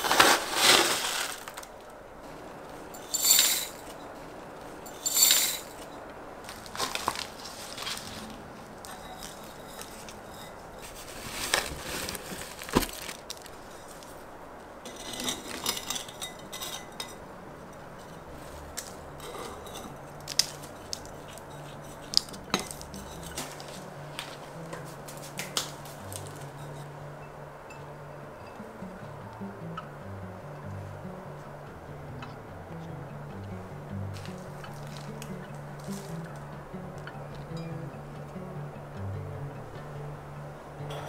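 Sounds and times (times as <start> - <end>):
potting soil rustling: 0.0 - 27.8, 30.6 - 38.7
pots clinking and knocking: 2.9 - 4.1, 4.8 - 14.0, 14.8 - 17.2, 18.0 - 23.8.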